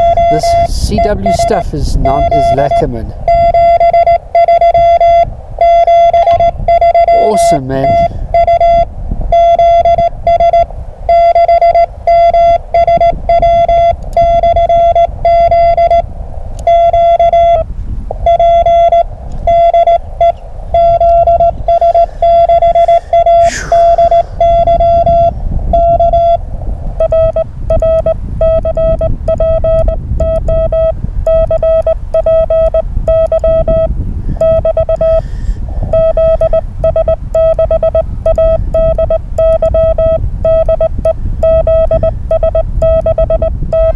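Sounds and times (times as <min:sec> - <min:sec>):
morse code beeps: 0:00.0 - 0:43.9
falling whistle: 0:03.3 - 0:07.4.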